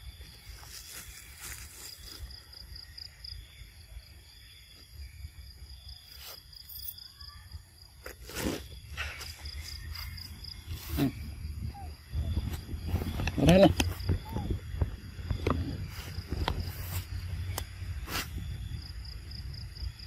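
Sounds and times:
insects chirping: 0.0s - 20.0s.

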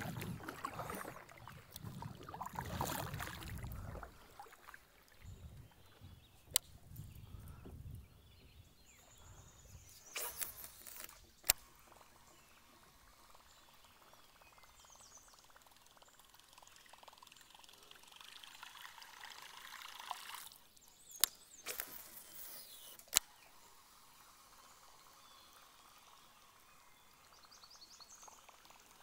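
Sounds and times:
water trickling and splashing: 0.0s - 6.1s, 10.4s - 22.5s, 25.9s - 29.0s
fishing tackle clicks: 10.1s - 11.7s, 21.2s - 23.4s.

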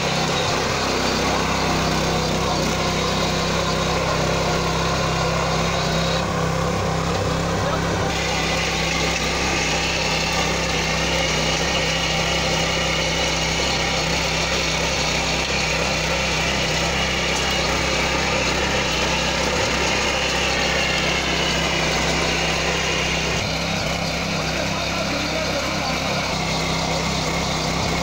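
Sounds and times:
rotary blades churning soil: 0.0s - 28.0s
tiller engine running: 0.0s - 28.0s.

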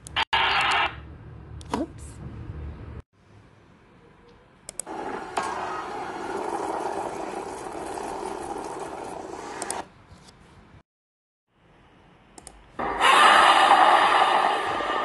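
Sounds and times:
rushing hissing beam noise: 12.8s - 15.0s.

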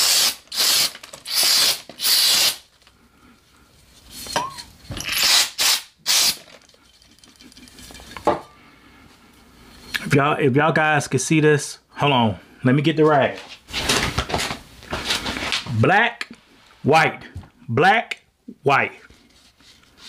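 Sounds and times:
aerosol spray hissing bursts: 0.0s - 2.6s.

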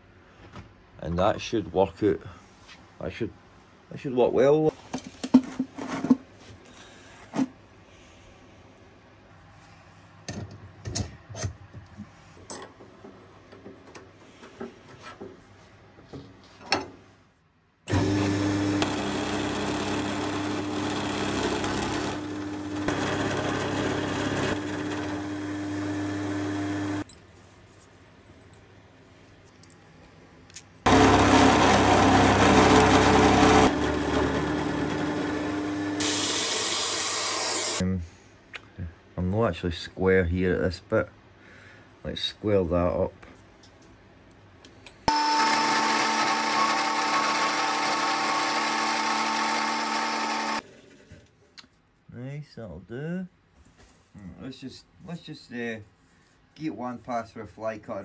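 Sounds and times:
milling machine cutting steel: 17.9s - 27.0s, 30.9s - 37.8s, 45.1s - 50.6s.

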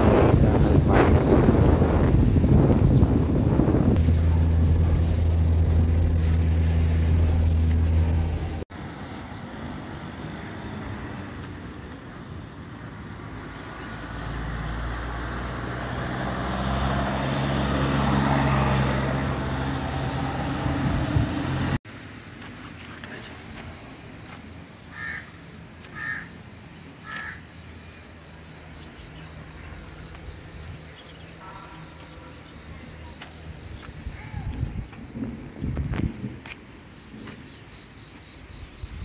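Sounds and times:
car engine droning: 0.0s - 8.7s, 13.2s - 21.8s
vehicle engine approaching: 0.0s - 22.2s
traffic on wet road: 0.0s - 27.7s.

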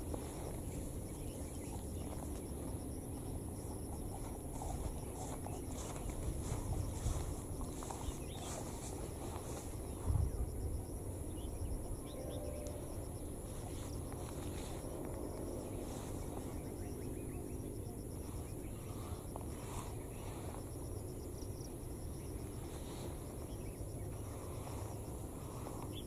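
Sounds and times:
high-pitched insect drone: 0.0s - 26.0s
pulsing insect chirp: 0.0s - 26.0s.

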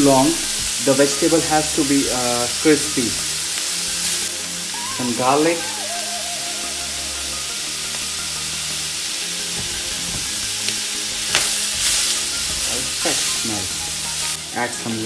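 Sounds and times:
vegetables sizzling in a frying pan: 0.0s - 15.0s
spatula stirring in a pan: 9.1s - 14.4s.

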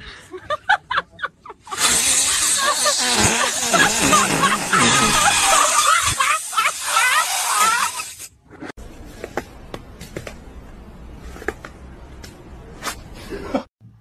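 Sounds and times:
rubber balloon squeaking: 1.7s - 8.2s.

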